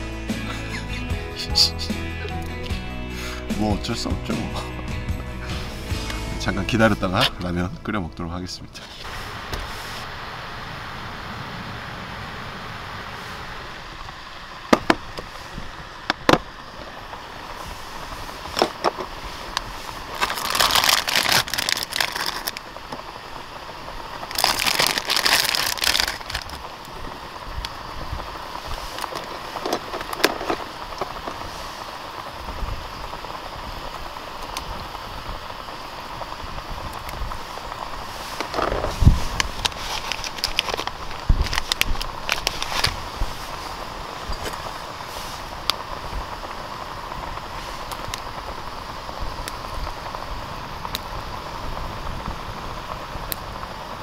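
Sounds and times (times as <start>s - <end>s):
steady hiss: 0.0s - 54.0s
plastic packaging crinkling: 20.0s - 22.6s, 24.2s - 27.0s, 38.4s - 43.3s.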